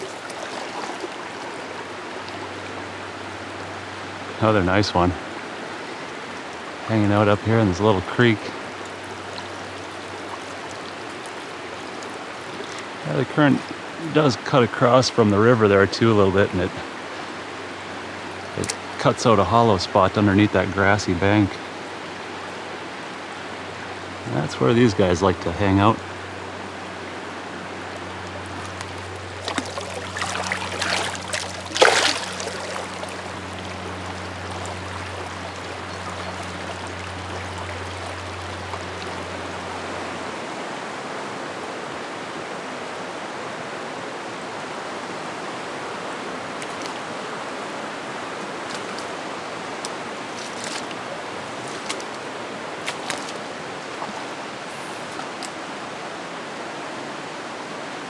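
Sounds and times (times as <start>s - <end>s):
splashing in water: 0.0s - 2.7s, 8.5s - 13.0s, 27.9s - 40.2s, 46.6s - 47.2s, 48.5s - 55.6s
creek running over stones: 0.0s - 42.0s, 44.4s - 56.8s.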